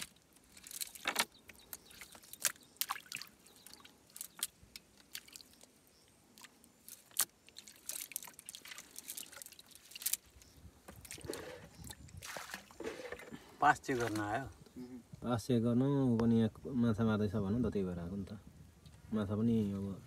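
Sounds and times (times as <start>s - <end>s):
wet fishing net clicks and rustles: 0.0s - 14.4s.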